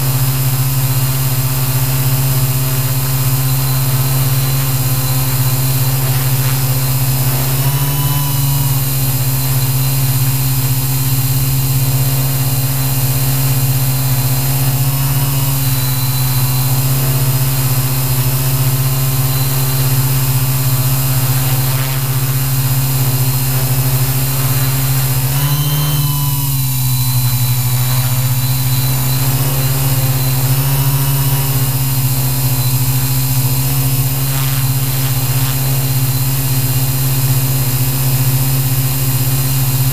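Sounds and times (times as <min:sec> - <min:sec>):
drone propellers humming: 0:00.0 - 0:39.9.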